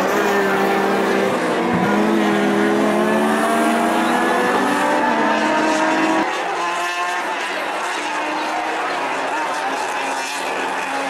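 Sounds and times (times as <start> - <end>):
race car engine accelerating: 0.0 - 11.0.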